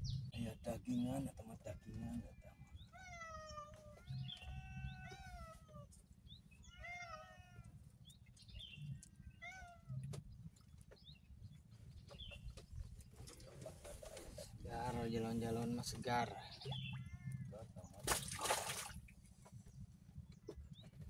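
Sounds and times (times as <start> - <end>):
cat meowing: 2.1 - 5.9, 6.6 - 7.8, 9.3 - 10.1, 17.0 - 17.6.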